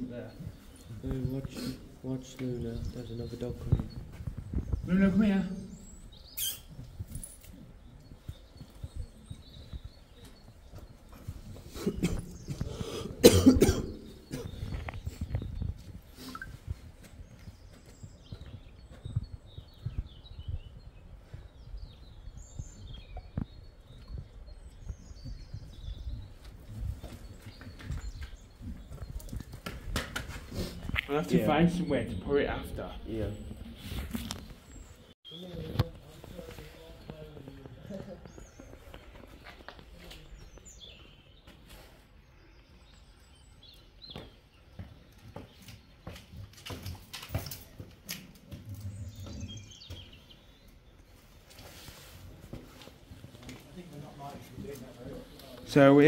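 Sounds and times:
birds chirping and singing: 0.0s - 56.0s
wind buffeting microphone: 2.6s - 13.3s, 14.0s - 34.7s.

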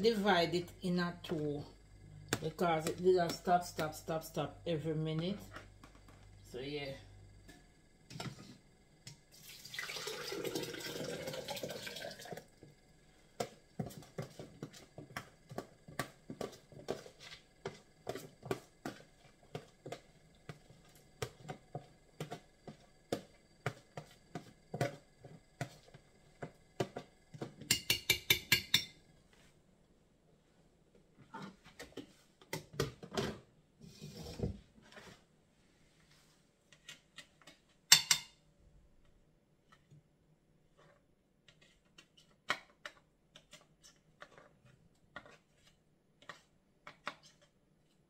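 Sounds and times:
wet coconut pouring: 9.4s - 12.4s.

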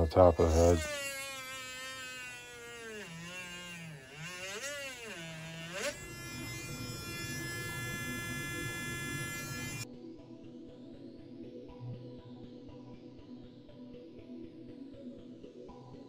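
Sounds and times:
rotary tool whining drilling wood: 0.0s - 9.8s.

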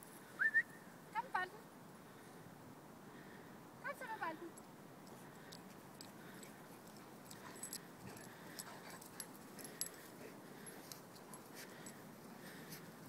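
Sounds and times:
metallic jingles: 4.5s - 12.6s.

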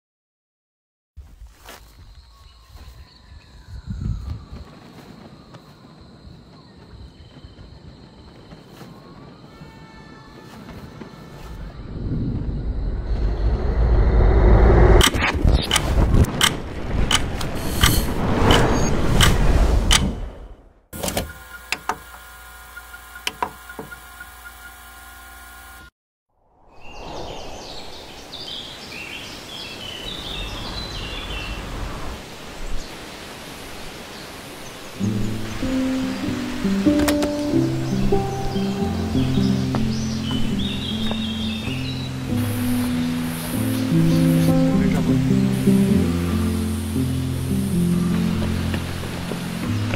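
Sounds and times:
small birds chirping: 1.9s - 11.4s, 26.7s - 33.2s, 34.0s - 49.8s
deep rumble: 11.7s - 19.9s
sharp clicks: 15.0s - 20.1s.

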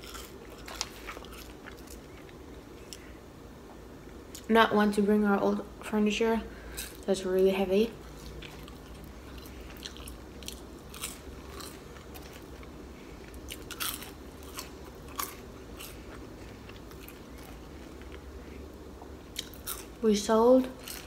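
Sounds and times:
person chewing crunchy fries: 0.0s - 3.1s, 6.6s - 7.1s, 7.9s - 20.0s, 20.6s - 21.0s.

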